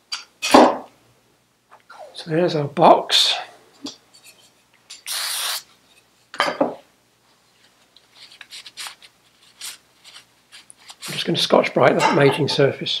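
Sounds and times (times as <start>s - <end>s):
aerosol spray hissing: 5.1s - 5.7s
paper towel rubbing: 8.0s - 11.4s.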